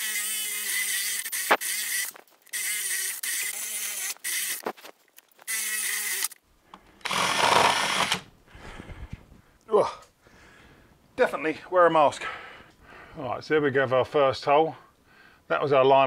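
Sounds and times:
power drill boring into wood: 0.0 - 4.7, 5.5 - 6.4, 7.0 - 8.3.

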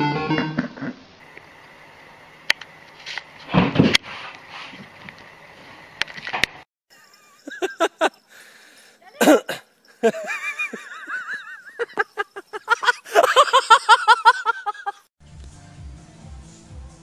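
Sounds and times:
shrill laughter and shrieks: 10.0 - 15.1.

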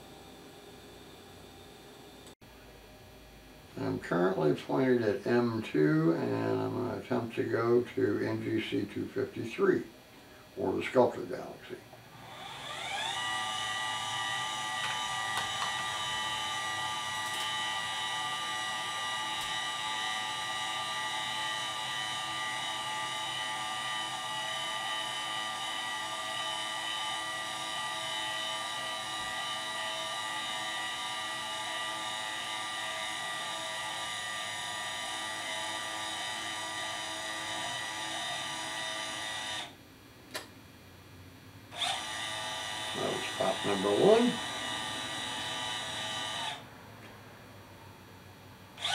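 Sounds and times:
motors whining: 12.1 - 39.7, 41.7 - 46.7.

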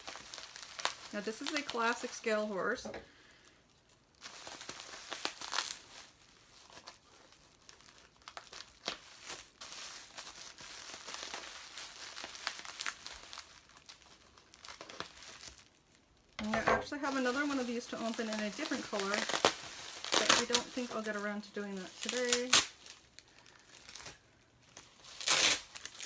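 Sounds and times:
bubble wrap crinkling: 0.0 - 26.0
scissors cutting plastic: 16.4 - 21.1.

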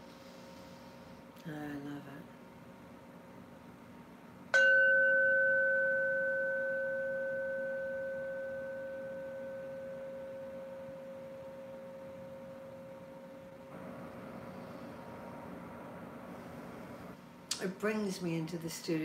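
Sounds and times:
singing bowl struck and ringing: 4.5 - 13.2.

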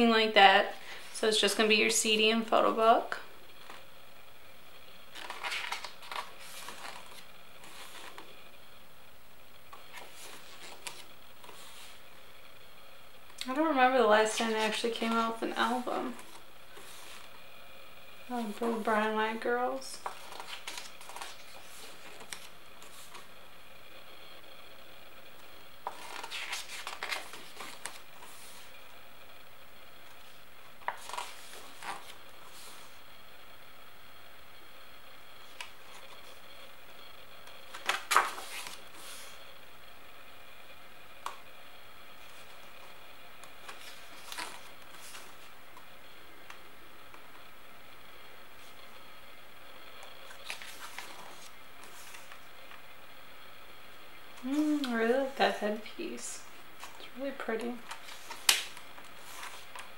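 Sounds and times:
book pages turning: 5.1 - 8.4, 9.7 - 12.1, 14.2 - 17.4, 18.3 - 19.1, 19.8 - 23.4, 25.4 - 28.8, 30.0 - 33.0, 35.4 - 36.5, 37.4 - 39.4, 42.2 - 47.5, 49.9 - 52.8, 54.4 - 55.6, 56.8 - 59.9.

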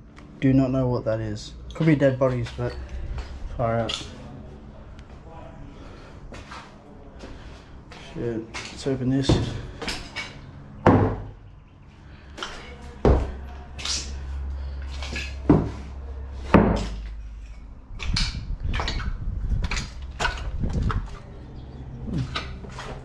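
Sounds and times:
door knocks and clatters: 10.8 - 11.4
old door opening: 18.0 - 23.0.

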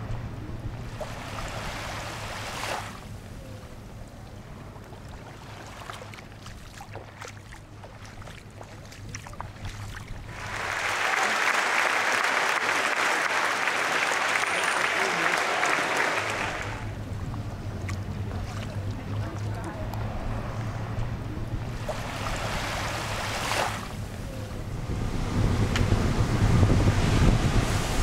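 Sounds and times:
low steady hum: 0.0 - 10.8, 16.5 - 28.0
stadium crowd applauding: 10.3 - 16.9.

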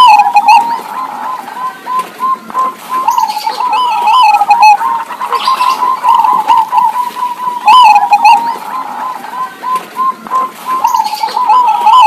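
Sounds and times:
doves cooing: 0.0 - 12.0
high chirping: 0.0 - 12.0.

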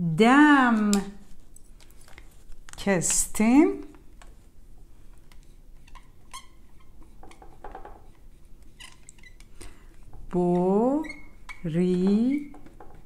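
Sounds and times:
marker squeaking on whiteboard: 5.2 - 13.0.

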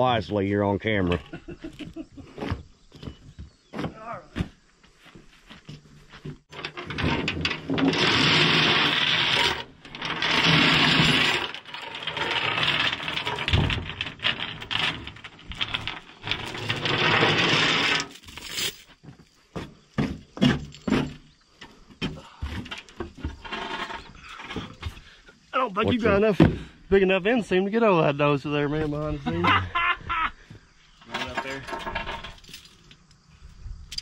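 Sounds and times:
shovel scraping dirt: 6.8 - 13.6.

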